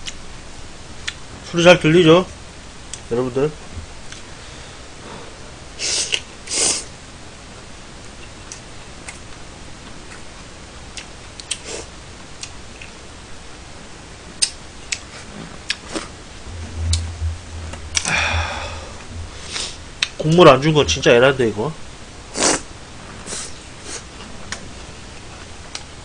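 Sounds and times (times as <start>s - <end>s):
chewing with clicks and smacks: 10.9s - 11.6s, 14.4s - 16.1s
loud noodle slurps: 22.4s - 22.6s.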